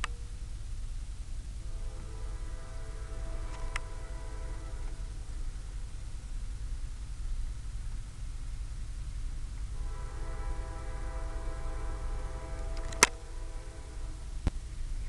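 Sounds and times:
steady low rumble: 0:00.0 - 0:15.0
locomotive air horn chord: 0:01.4 - 0:07.0, 0:09.5 - 0:15.0
sharp click: 0:12.8 - 0:13.2.

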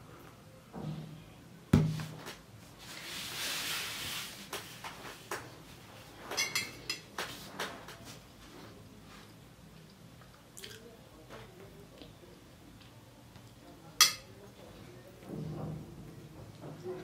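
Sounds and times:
ceramic mug knocking on table: 0:01.8 - 0:02.2.

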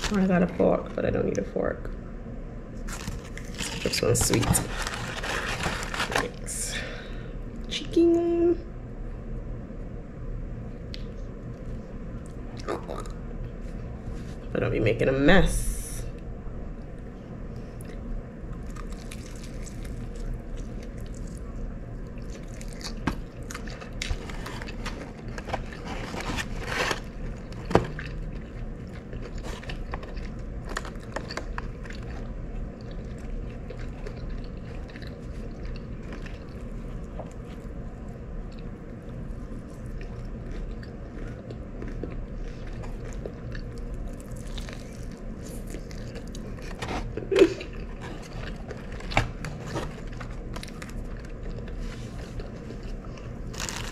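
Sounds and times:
steady low hum: 0:00.0 - 0:53.9
crunchy chewing: 0:17.6 - 0:53.9.

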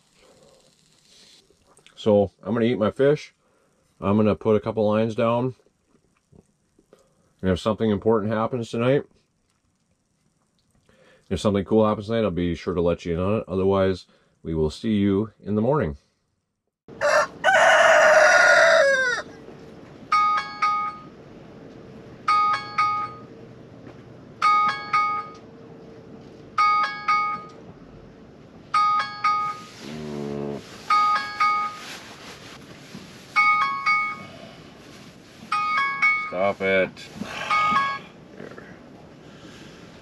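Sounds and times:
rooster crowing: 0:16.9 - 0:19.4
alarm ringtone chiming: 0:20.1 - 0:21.1, 0:22.3 - 0:23.3, 0:24.4 - 0:25.4, 0:26.6 - 0:27.6, 0:28.8 - 0:29.8, 0:30.9 - 0:31.9, 0:33.4 - 0:34.3, 0:35.5 - 0:36.4, 0:37.4 - 0:38.2.

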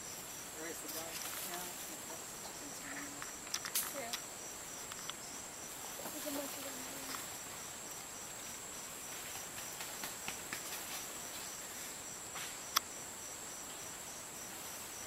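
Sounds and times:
insect chirping: 0:00.0 - 0:15.0
insects buzzing: 0:00.0 - 0:15.0
sharp clicks: 0:04.9 - 0:05.2.

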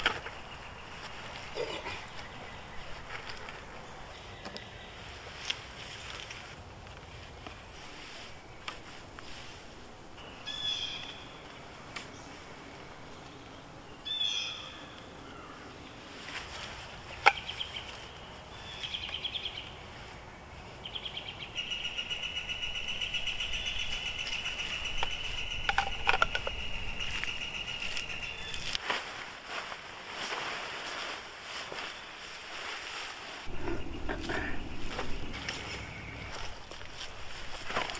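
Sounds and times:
birds chirping: 0:00.0 - 0:05.4, 0:10.2 - 0:28.8, 0:33.5 - 0:37.6.

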